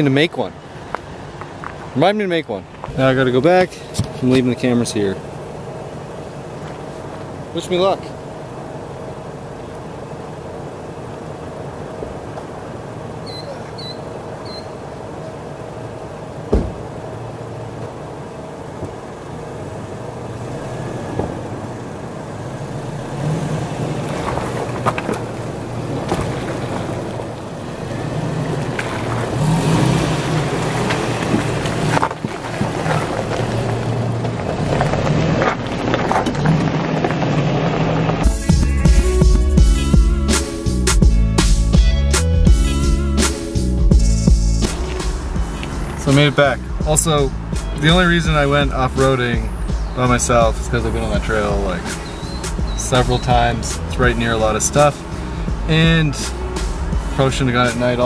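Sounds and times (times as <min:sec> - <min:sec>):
thump: 0:16.5 - 0:16.9, 0:21.1 - 0:21.4
shallow stream rushing: 0:20.4 - 0:38.2
background music: 0:38.2 - 0:58.0.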